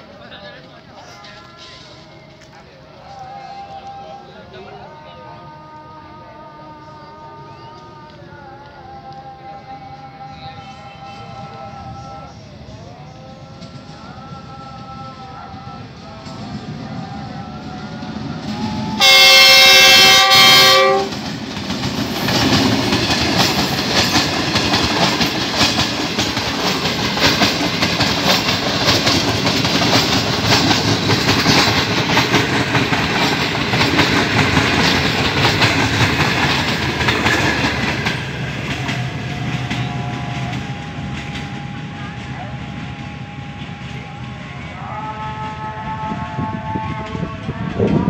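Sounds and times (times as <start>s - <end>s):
train wheels clattering: 17.7s - 44.4s
locomotive horn blasts: 18.4s - 21.2s.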